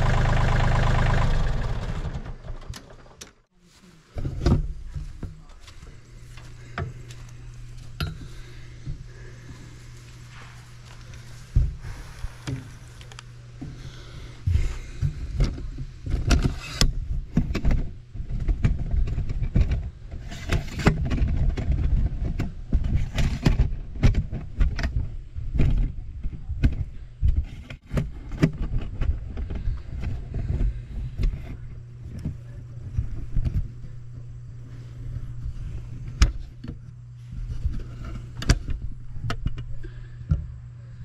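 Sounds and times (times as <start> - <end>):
tractor engine running: 0.0 - 3.4.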